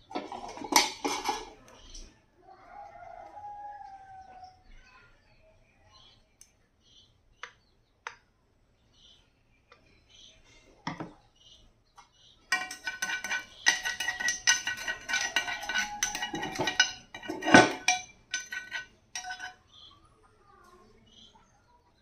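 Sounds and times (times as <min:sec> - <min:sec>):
metal spoon scraping and clinking: 0:00.0 - 0:01.6, 0:12.5 - 0:19.6.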